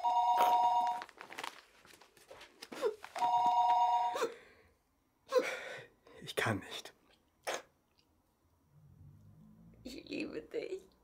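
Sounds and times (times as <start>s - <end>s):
telephone ringing: 0.0s - 1.1s, 3.2s - 4.2s.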